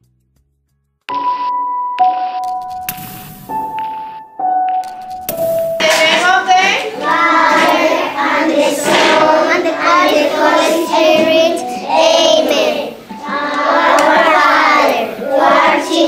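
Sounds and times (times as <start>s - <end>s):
young children singing: 5.9s - 16.0s.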